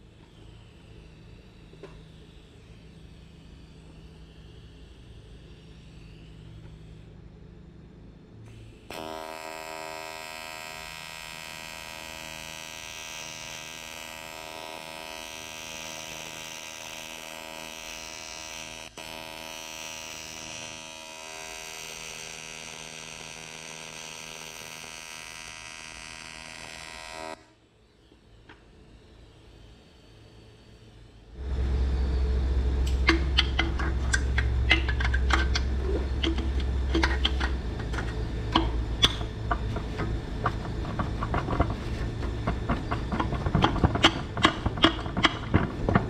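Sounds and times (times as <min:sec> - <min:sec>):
welding arc buzzing: 0:08.5 - 0:27.6, 0:31.4 - 0:46.0.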